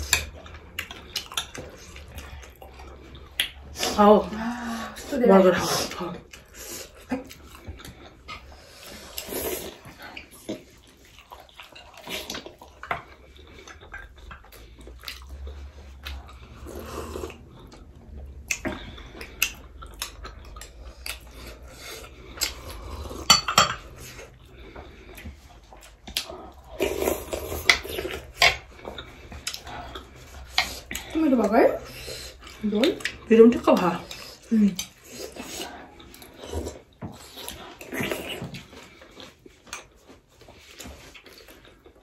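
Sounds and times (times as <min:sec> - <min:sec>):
chewing: 0:00.0 - 0:42.0
slurping soup: 0:05.6 - 0:32.6.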